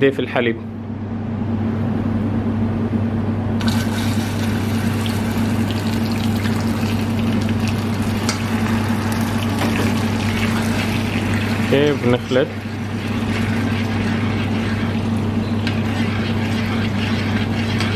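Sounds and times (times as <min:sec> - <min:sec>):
steady low hum: 0:00.0 - 0:17.9
caramel hissing and sizzling: 0:03.6 - 0:17.9.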